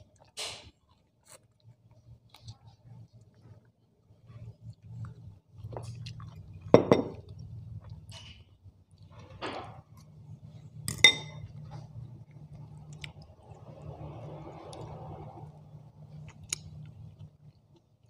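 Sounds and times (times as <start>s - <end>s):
soft chewing: 0.0s - 18.0s
fork clinking against ceramic bowl: 10.9s - 11.5s.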